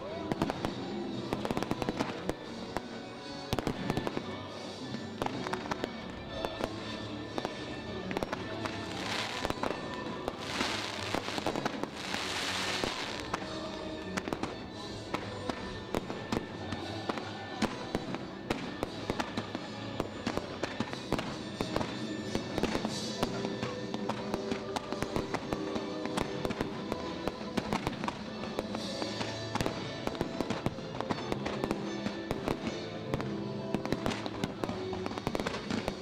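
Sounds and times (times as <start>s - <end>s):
music: 0.0s - 36.0s
firework cracks and bangs: 5.2s - 36.0s
hissing firework launches: 10.4s - 13.2s.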